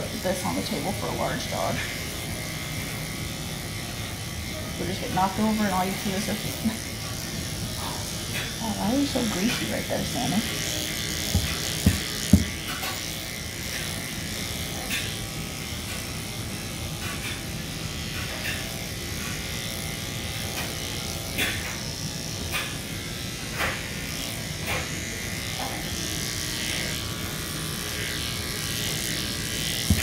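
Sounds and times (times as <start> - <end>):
electric clippers running: 0.0 - 30.0
sharp knocks: 11.3 - 12.6.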